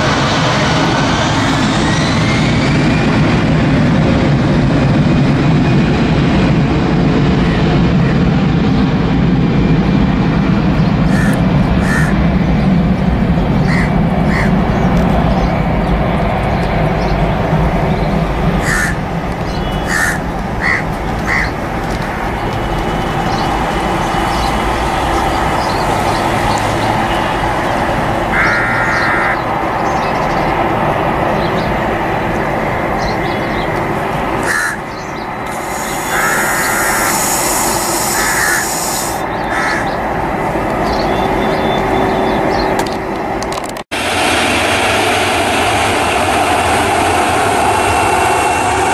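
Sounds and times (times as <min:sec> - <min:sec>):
jet engine roar: 0:00.0 - 0:48.9
crows cawing: 0:11.0 - 0:12.2, 0:13.6 - 0:14.6, 0:18.6 - 0:22.2, 0:28.3 - 0:29.5, 0:34.4 - 0:40.0.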